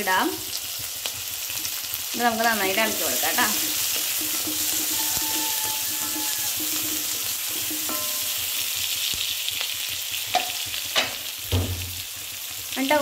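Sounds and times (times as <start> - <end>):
food sizzling in hot oil: 0.0 - 13.0
spatula scraping and tapping pan: 3.3 - 9.2, 10.3 - 11.3.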